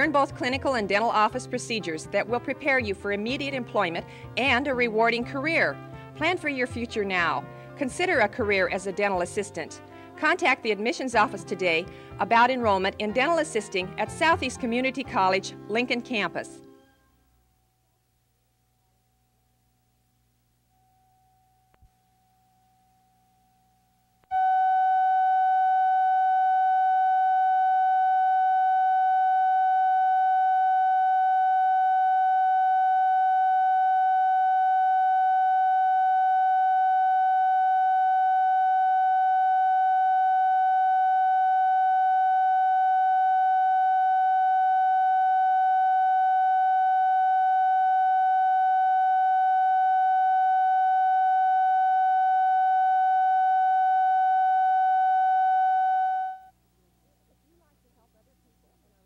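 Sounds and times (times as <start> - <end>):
faint hum: 16.6 - 59.0
steady test tone: 20.6 - 56.6.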